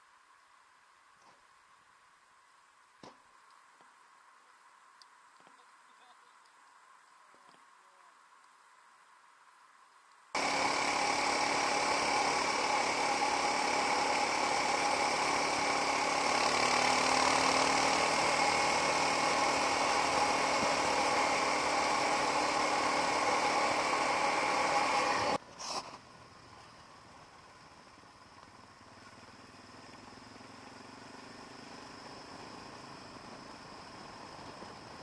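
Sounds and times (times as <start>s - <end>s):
motorcycle engine running: 10.4s - 25.4s, 26.4s - 35.0s.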